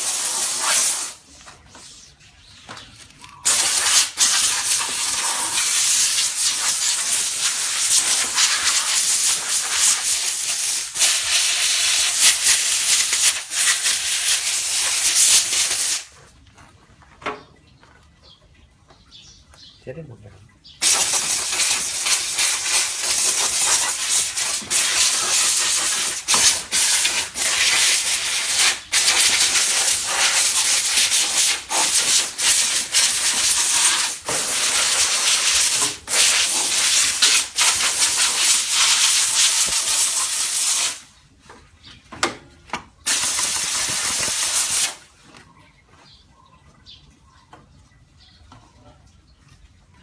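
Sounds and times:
steam cleaner hissing: 0.0 - 1.3, 3.4 - 16.1, 20.8 - 41.0, 43.1 - 45.0.

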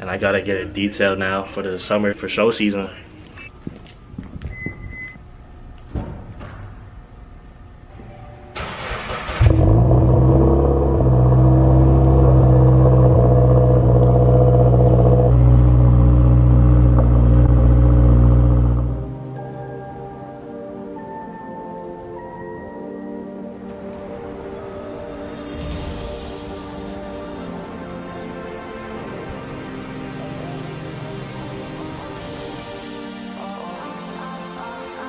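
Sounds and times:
car engine cranking and idling: 8.6 - 19.2.

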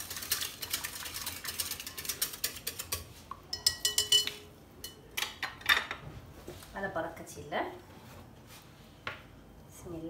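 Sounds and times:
wire whisk beating batter in bowl: 0.0 - 4.3.

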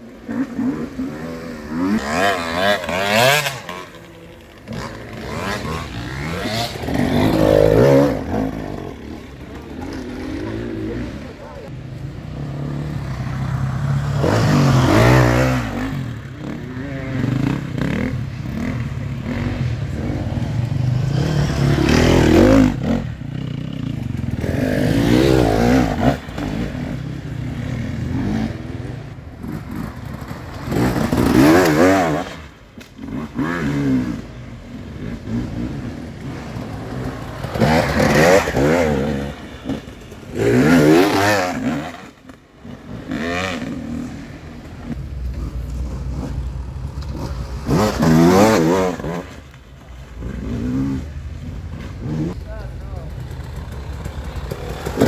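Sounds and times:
dirt bike engines revving: 0.0 - 55.0.

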